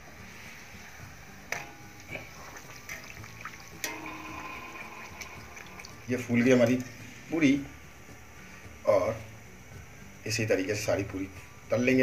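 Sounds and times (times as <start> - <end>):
food sizzling in deep-frying oil: 1.7 - 6.4
wire skimmer clicking against pan: 2.9 - 4.4.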